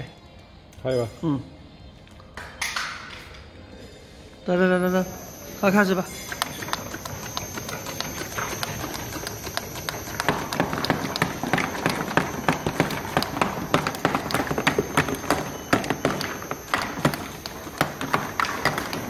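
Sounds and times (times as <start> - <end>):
thin high whine: 3.4 - 19.0
bottles clacking on conveyor: 5.8 - 19.0.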